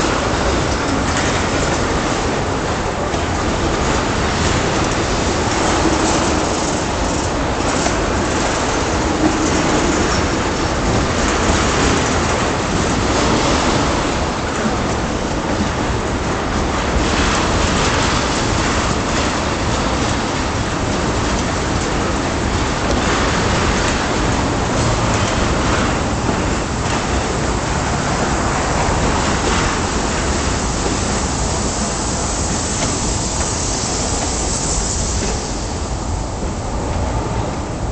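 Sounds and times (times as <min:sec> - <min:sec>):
train wheels rolling on rails: 0:00.0 - 0:37.9.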